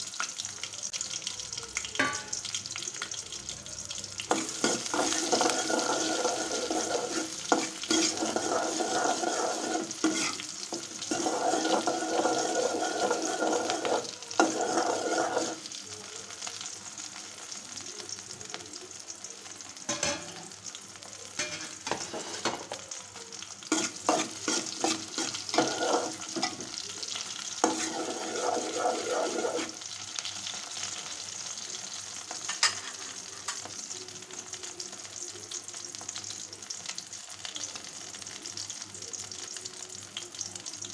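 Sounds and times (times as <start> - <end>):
shrimp sizzling in hot oil: 0.0 - 40.9
steel spoon scraping a pot: 4.3 - 15.6, 21.4 - 22.6, 23.7 - 26.7, 27.6 - 29.8.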